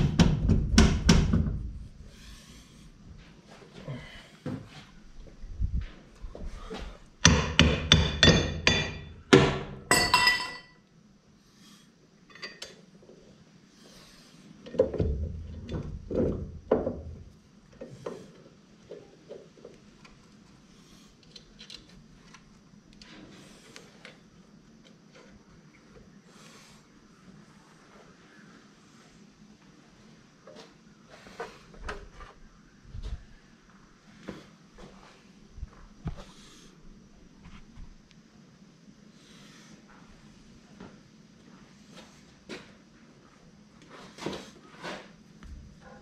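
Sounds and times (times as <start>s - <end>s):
hammer striking metal: 7.2s - 10.7s
tools clinking: 9.9s - 10.8s.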